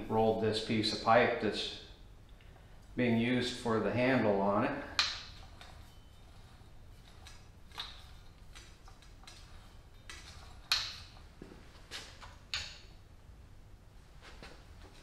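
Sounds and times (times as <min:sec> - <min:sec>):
metallic clicks of rolling machine: 0:04.9 - 0:11.3.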